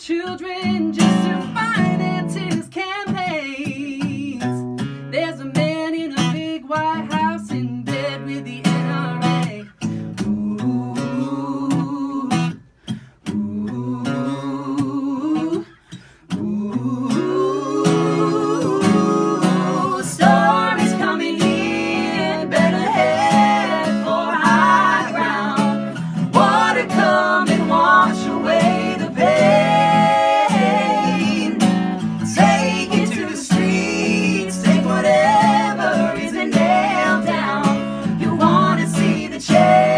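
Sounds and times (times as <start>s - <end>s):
man and woman singing: 0.0s - 12.6s, 13.2s - 39.9s
acoustic guitar strumming: 15.9s - 39.9s.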